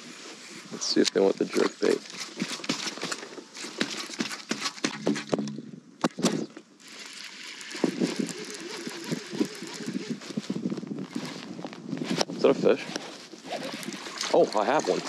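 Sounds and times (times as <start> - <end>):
fishing reel whirring: 6.8 - 11.5, 13.4 - 15.0.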